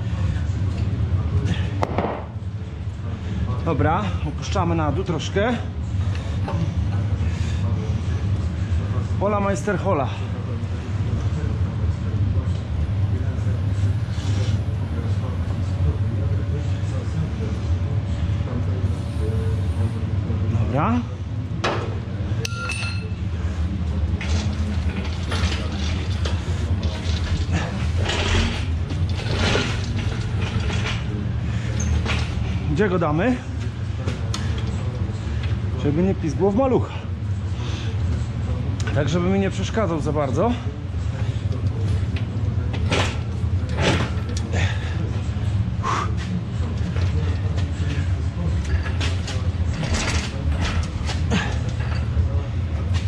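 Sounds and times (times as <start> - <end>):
steady low hum: 0.0 - 53.0
crane rolling on concrete: 24.1 - 32.6.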